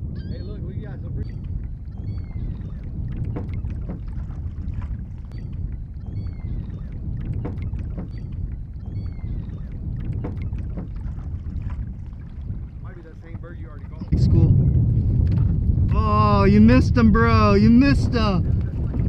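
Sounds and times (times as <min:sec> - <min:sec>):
wind and water rumble: 0:00.0 - 0:19.0
light knocks: 0:07.2 - 0:08.4.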